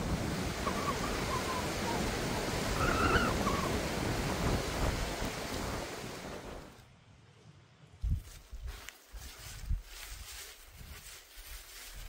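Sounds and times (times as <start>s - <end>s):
mountain stream rushing: 0.0s - 6.8s
faint wavering high calls: 0.6s - 2.1s, 2.7s - 3.8s.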